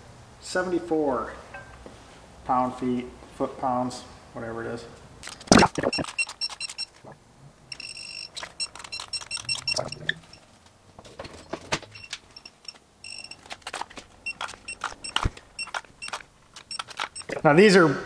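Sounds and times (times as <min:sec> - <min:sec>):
torque wrench beeping: 0:05.7 - 0:06.9, 0:07.7 - 0:10.5, 0:12.0 - 0:13.5, 0:14.2 - 0:17.4.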